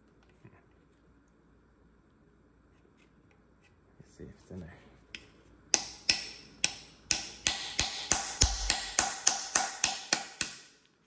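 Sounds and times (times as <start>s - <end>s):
hammer tapping metal tool: 5.1s - 10.9s.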